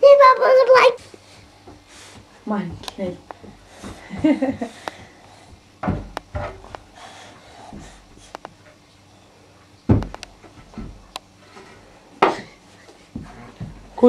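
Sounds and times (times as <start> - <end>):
wooden chair knocking and scraping: 5.8 - 6.8, 9.9 - 11.1.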